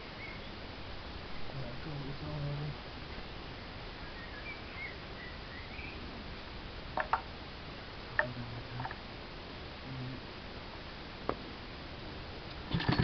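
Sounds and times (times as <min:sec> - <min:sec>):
bird chirping faintly: 0:00.0 - 0:02.7, 0:03.5 - 0:06.1.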